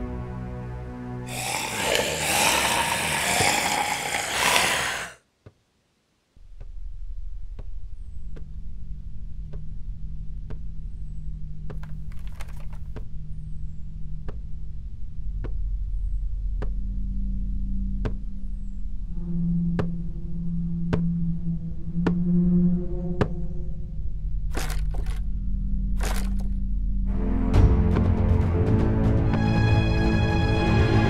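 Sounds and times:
low suspense drone: 0:13.0 - 0:29.1.

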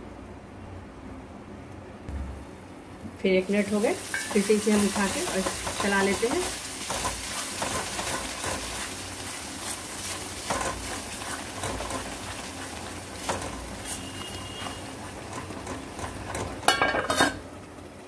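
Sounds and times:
masala sizzling in a pan: 0:02.4 - 0:18.0
spatula stirring: 0:04.0 - 0:17.4.

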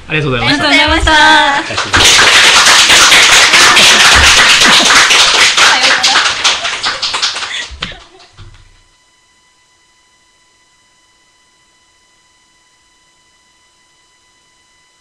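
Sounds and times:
hands clapping applause: 0:01.4 - 0:08.4.

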